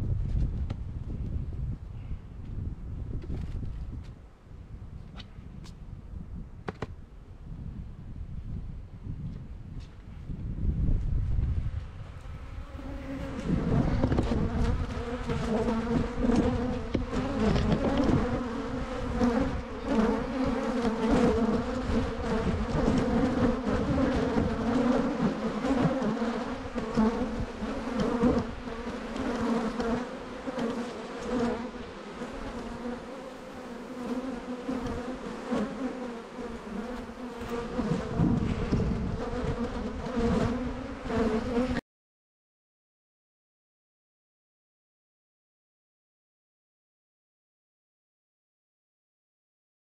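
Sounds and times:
wind rumbling on microphone: 0.0 - 30.1, 36.5 - 41.8
honeybees buzzing: 12.0 - 41.8.

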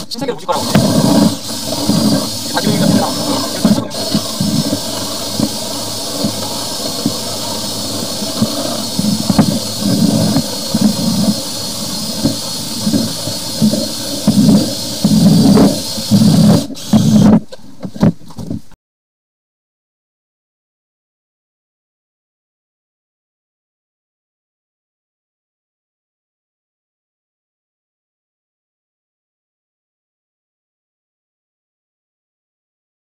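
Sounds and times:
water jetting hiss in pipe: 0.0 - 17.5
low gurgling surges and knocks: 0.2 - 17.3.

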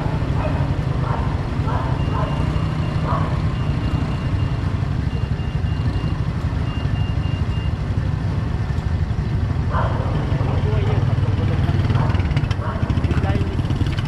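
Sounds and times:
motorcycle engine idling: 7.7 - 14.0.

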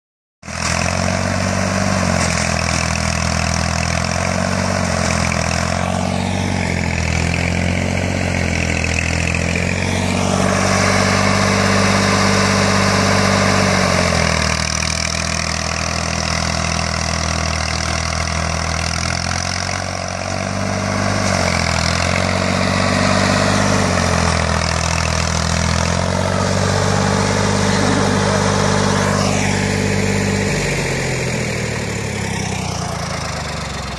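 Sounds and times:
tractor engine running under load: 0.4 - 33.9.

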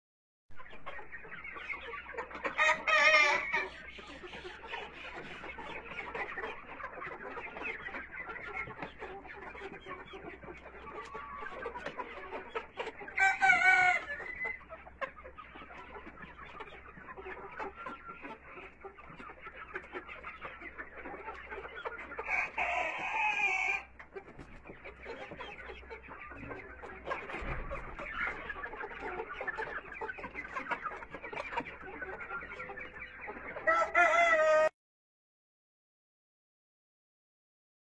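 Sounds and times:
hens clucking: 0.6 - 34.7
hen drawn-out calls: 2.2 - 5.9, 8.8 - 14.6, 20.6 - 24.0.

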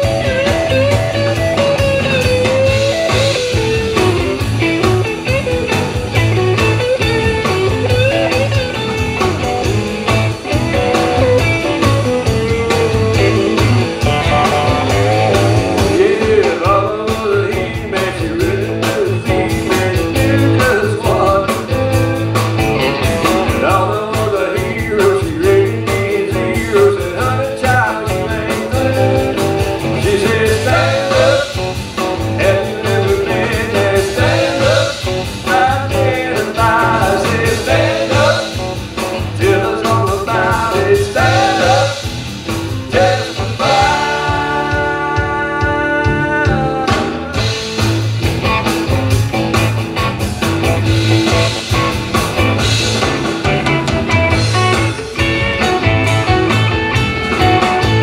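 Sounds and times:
drum kit: 0.0 - 58.0
electric bass: 0.0 - 58.0
electric guitars: 0.0 - 58.0
person singing: 14.8 - 21.9, 23.2 - 31.6, 32.3 - 38.6, 39.2 - 42.1, 42.8 - 47.5.

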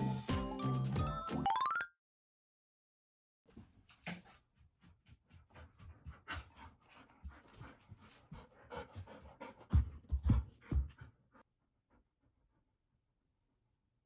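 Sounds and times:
dog panting: 4.6 - 12.8.

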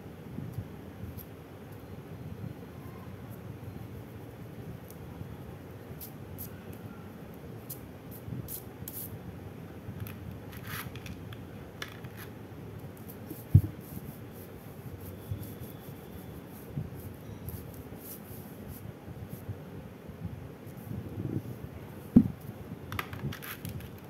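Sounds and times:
dull thump: 22.2 - 22.4.

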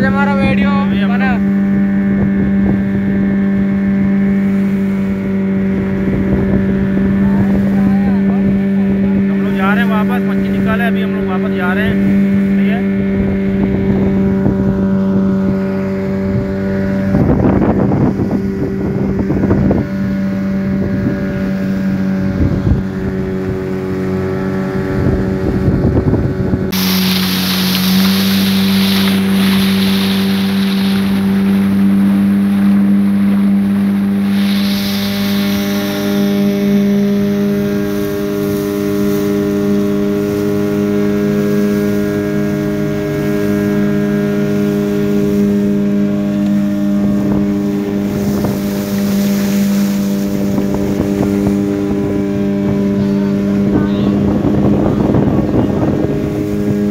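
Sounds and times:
wind on microphone: 0.0 - 10.7, 11.8 - 56.9
boat motor humming: 0.0 - 56.9
water rushing past hull: 0.0 - 56.9
hiss of spray and wake: 2.7 - 10.7, 26.7 - 56.9.

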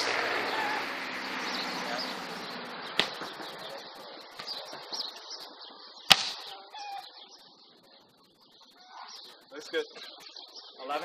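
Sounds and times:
faint bird chirps: 0.3 - 11.0
hand striking volleyball: 3.0 - 3.3.

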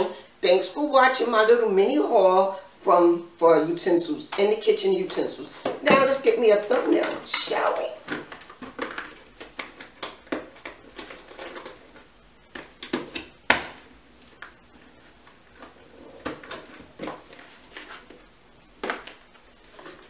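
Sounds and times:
cardboard and paper rustling: 7.8 - 12.7, 15.4 - 20.0.

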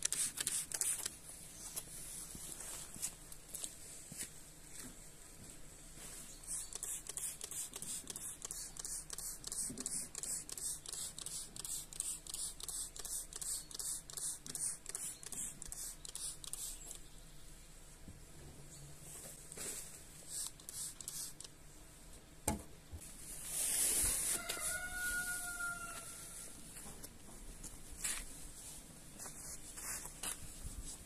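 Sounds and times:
spray bottle squirting: 0.0 - 1.2, 6.6 - 17.0, 20.3 - 21.5.

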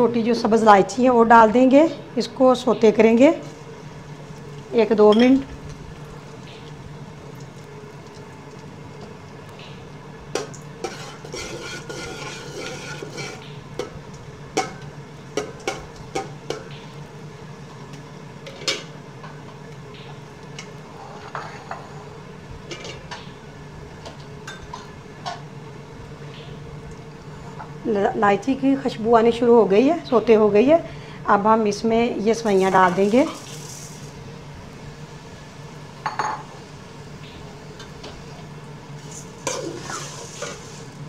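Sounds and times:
steady low hum: 0.0 - 41.0
spoon scraping pot: 10.8 - 13.4.

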